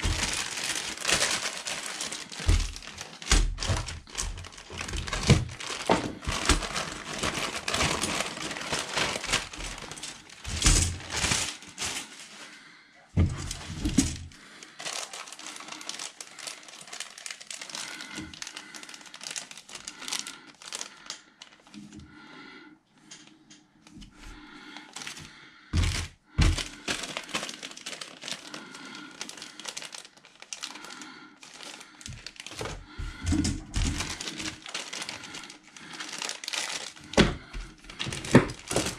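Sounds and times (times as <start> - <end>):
plastic bags crinkling: 0.0 - 22.0, 24.1 - 38.9.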